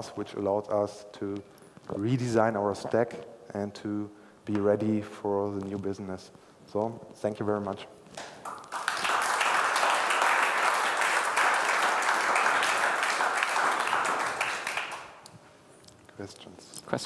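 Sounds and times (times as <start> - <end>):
audience applauding: 8.2 - 15.2.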